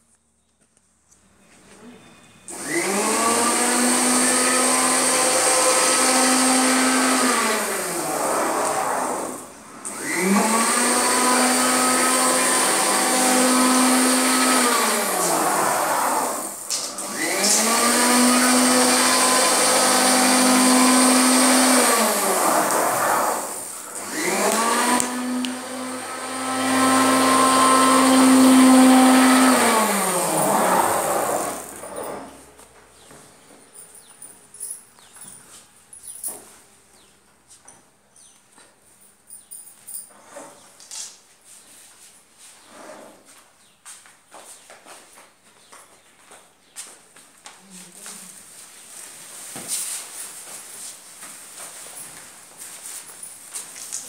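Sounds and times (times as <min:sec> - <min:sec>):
sewing machine motor whining: 0:02.5 - 0:32.4.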